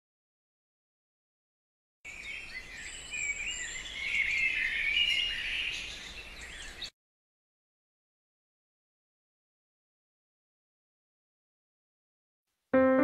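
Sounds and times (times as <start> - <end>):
birds chirping: 2.1 - 6.9.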